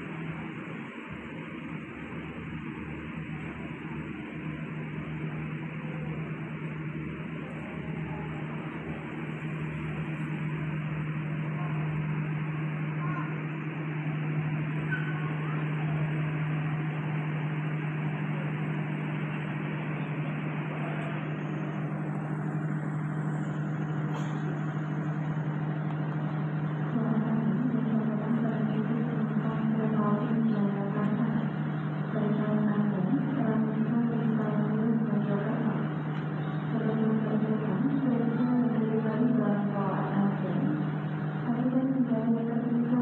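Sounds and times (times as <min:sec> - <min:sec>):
diesel train engine idling: 0:00.0 - 0:43.0
station noise: 0:00.0 - 0:43.0.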